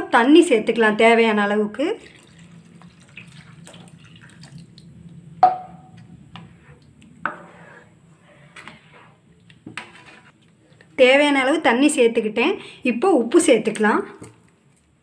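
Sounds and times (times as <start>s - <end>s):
water pouring into pan: 2.0s - 4.9s
spatula stirring gravy: 6.3s - 10.9s.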